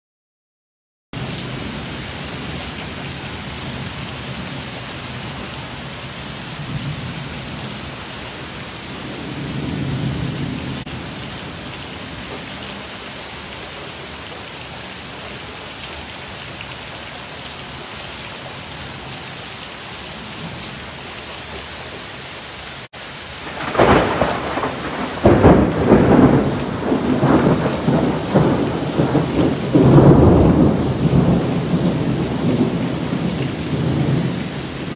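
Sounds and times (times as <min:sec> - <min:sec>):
heavy rain pouring: 0:01.2 - 0:34.9
loud thunder crack: 0:23.4 - 0:34.9
thunder rumbling: 0:23.4 - 0:34.9.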